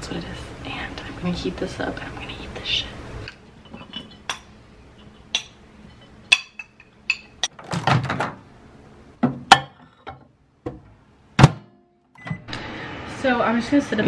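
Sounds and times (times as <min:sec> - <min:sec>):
dishware clinking: 0:03.6 - 0:07.5.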